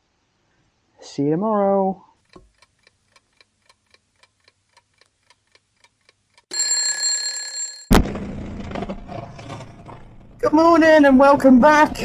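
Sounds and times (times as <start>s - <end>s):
clock ticking: 2.3s - 6.5s
alarm clock bell ringing: 6.5s - 7.9s.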